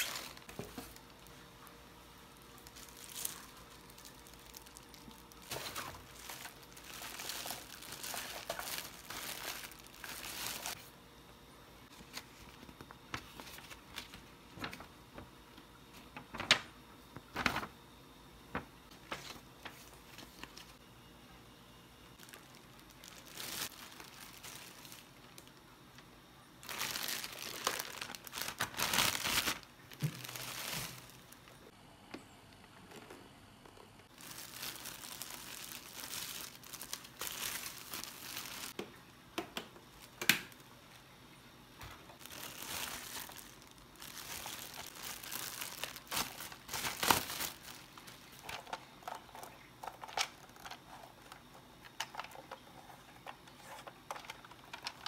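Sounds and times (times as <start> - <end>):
plastic bags crinkling: 0.0 - 10.9, 22.2 - 25.6, 26.6 - 31.7, 34.1 - 38.8, 42.1 - 55.0.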